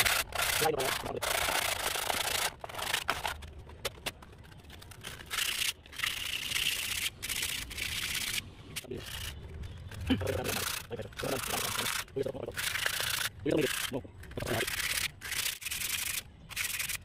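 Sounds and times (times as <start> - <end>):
sandpaper scraping metal: 0.0 - 3.4, 10.4 - 17.0.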